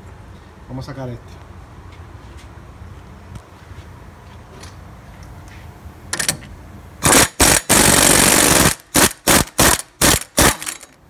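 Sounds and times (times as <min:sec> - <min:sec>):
impact wrench hammering: 0:07.0 - 0:11.0.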